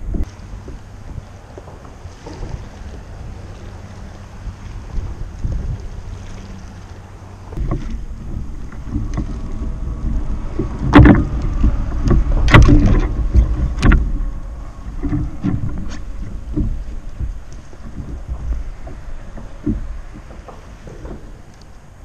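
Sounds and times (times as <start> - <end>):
wind buffeting microphone: 0.0 - 22.0.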